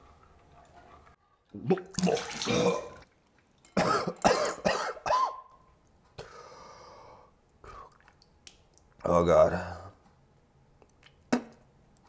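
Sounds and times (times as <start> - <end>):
man coughing and gagging: 2.4 - 3.0, 3.8 - 5.5
breathy sound: 6.2 - 8.0.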